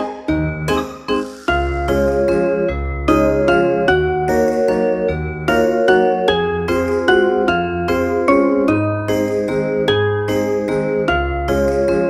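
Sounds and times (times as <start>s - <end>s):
tinkling melody over bass: 0.0s - 12.0s.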